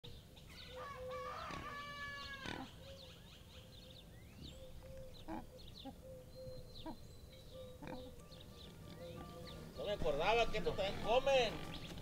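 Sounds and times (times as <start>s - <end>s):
small birds chirping: 0.1s - 12.0s
rooster crowing: 0.8s - 2.6s.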